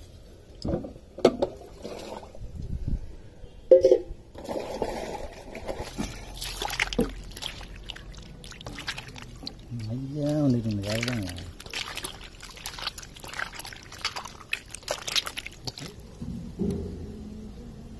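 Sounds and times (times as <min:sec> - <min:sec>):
wet squelching and sloshing: 0:01.7 - 0:02.5, 0:04.3 - 0:16.2.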